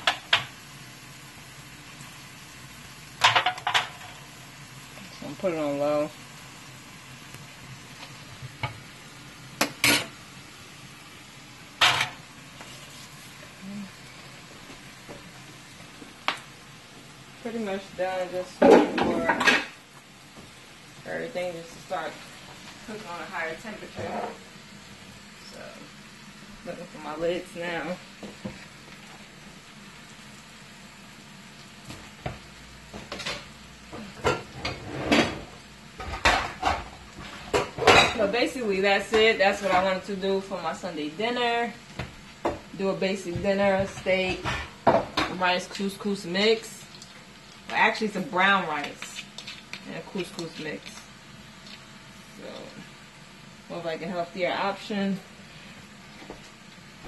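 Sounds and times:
steak sizzling in a skillet: 0.0s - 57.0s
pots and lids clattering: 3.2s - 4.2s, 11.8s - 12.2s, 18.6s - 19.8s.

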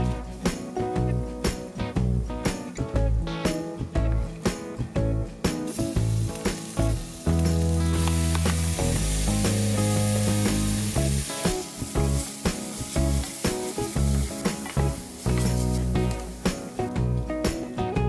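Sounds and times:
background music: 0.0s - 18.0s
oil sizzling in a frying pan: 5.6s - 17.0s.

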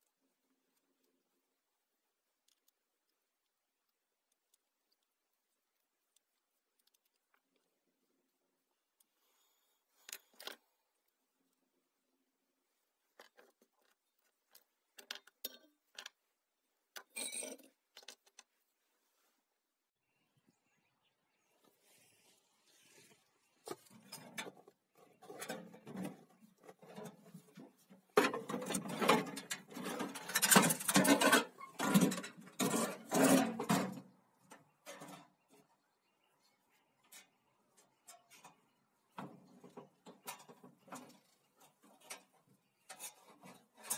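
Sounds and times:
small metal and plastic parts clicking: 2.4s - 7.8s, 10.0s - 11.2s, 13.1s - 16.2s, 16.9s - 18.5s
metal box scraping and knocking: 23.6s - 34.1s.

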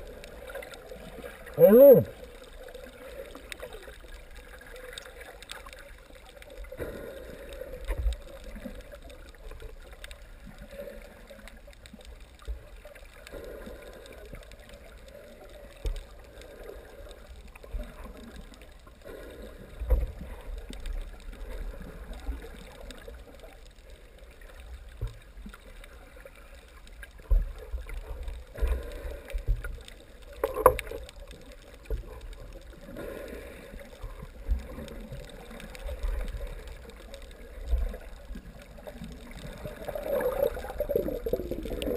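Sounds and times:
muffled underwater water movement: 0.0s - 41.9s.

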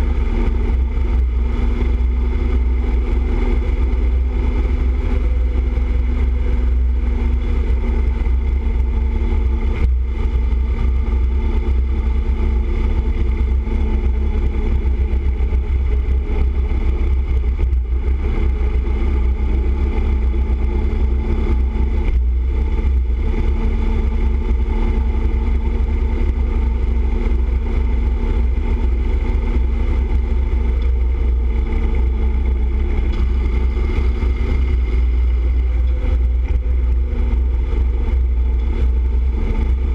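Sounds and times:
motorcycle engine cruising: 0.0s - 39.9s
wind rumble on microphone: 0.0s - 39.9s.

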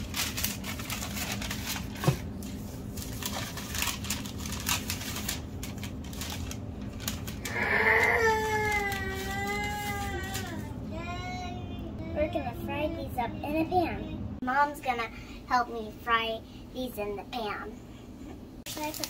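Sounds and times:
parchment paper rustling and crinkling: 0.0s - 10.7s, 18.7s - 19.0s
child's wavering voice: 7.5s - 14.2s.

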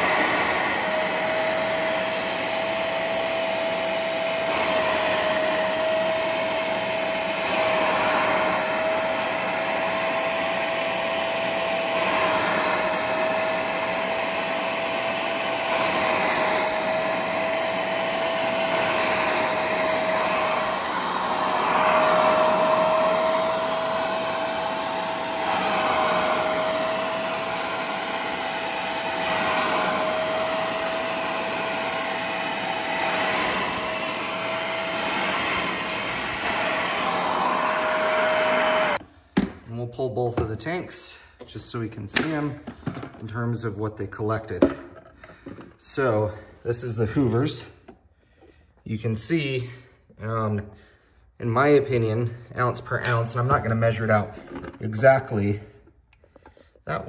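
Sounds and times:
carpet cleaner motor whine: 0.0s - 39.0s
suction noise: 0.0s - 39.0s.

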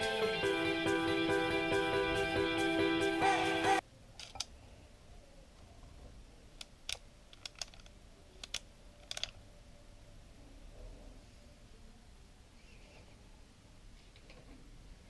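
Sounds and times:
guitar music: 0.0s - 3.8s.

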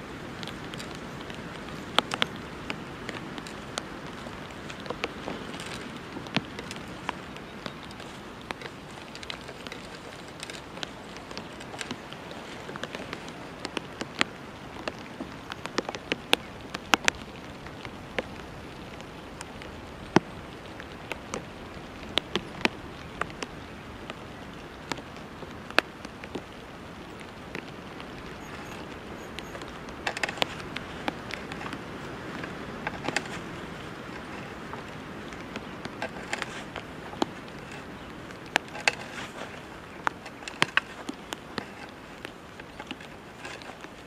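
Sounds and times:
steady background hiss: 0.0s - 44.0s.

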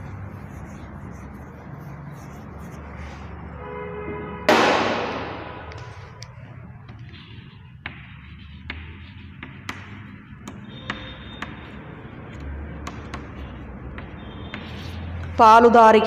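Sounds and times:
chalk tapping on blackboard: 0.0s - 3.3s, 5.7s - 15.5s
loud crash: 4.5s - 5.7s.

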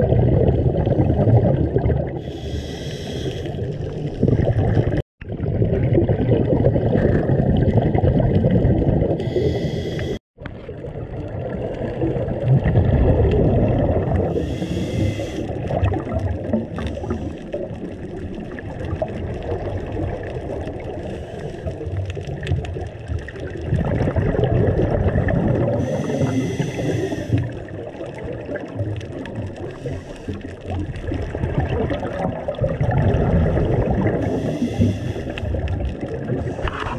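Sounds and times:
underwater exhale bubbling: 0.0s - 36.9s
regulator inhalation hiss: 2.2s - 3.6s, 9.2s - 10.2s, 14.4s - 15.5s, 25.8s - 27.4s, 34.3s - 35.4s.

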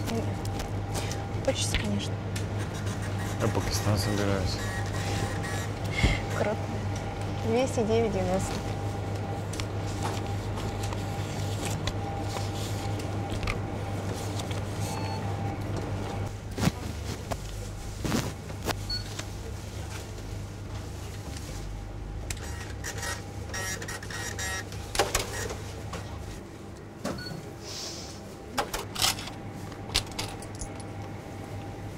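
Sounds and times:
steady low hum: 0.0s - 31.9s
receipt printer chattering: 22.4s - 25.5s.

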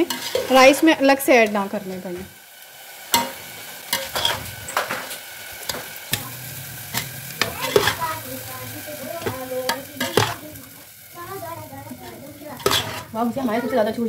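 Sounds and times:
spoon scraping and clinking on pot: 0.0s - 0.6s, 4.0s - 4.4s, 6.9s - 8.0s, 9.2s - 10.4s, 12.6s - 13.1s
rice rustling: 0.0s - 14.0s.

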